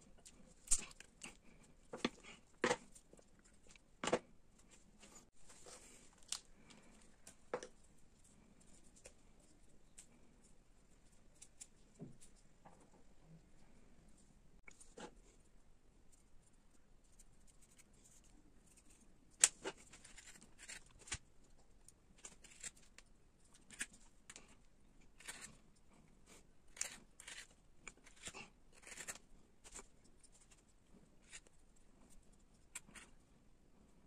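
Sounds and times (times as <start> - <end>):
carving tools scraping wood: 19.8 - 21.1, 25.2 - 25.6, 26.3 - 29.9.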